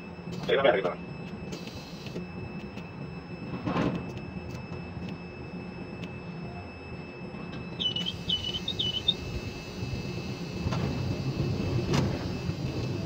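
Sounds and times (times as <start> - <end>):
crane machinery rumbling: 0.0 - 13.0
faint steady high tones: 0.0 - 13.0
short chirping tones: 7.7 - 9.4.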